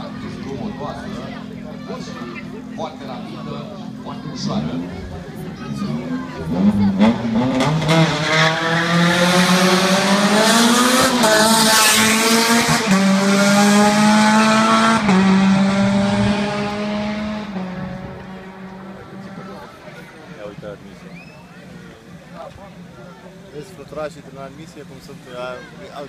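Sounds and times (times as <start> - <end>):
rally car engine revving: 3.8 - 20.4.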